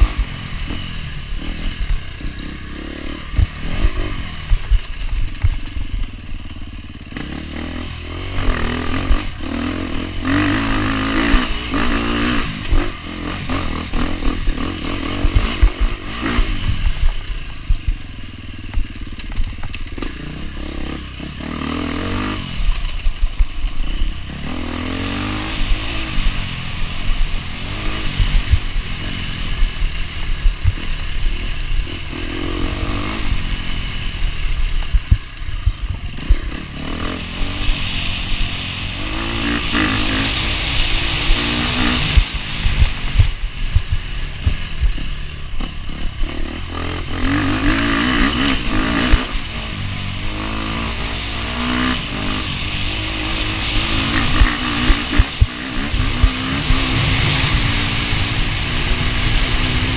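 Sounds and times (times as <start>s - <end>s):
motorcycle engine revving: 0.0s - 59.9s
bike knocks and rattles: 22.3s - 37.8s.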